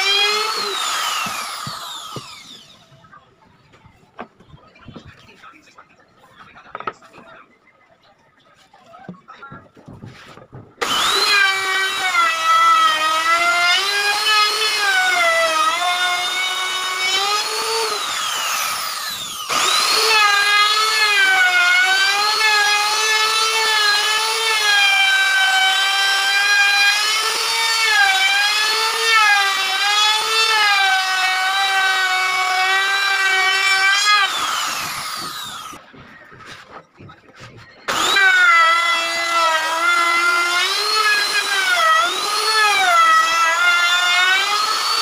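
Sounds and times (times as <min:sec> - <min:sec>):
trim router motor whine: 0:00.0 - 0:02.9, 0:10.8 - 0:35.8, 0:37.9 - 0:45.0.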